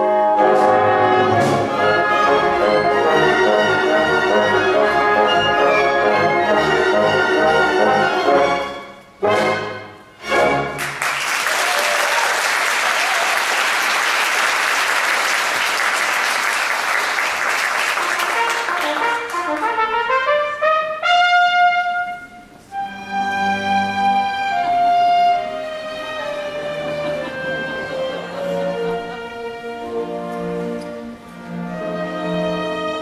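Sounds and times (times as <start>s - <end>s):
live orchestra playing: 0.0s - 11.2s, 14.9s - 33.0s
rising run of brass notes: 0.0s - 26.4s
audience applauding: 10.8s - 19.8s.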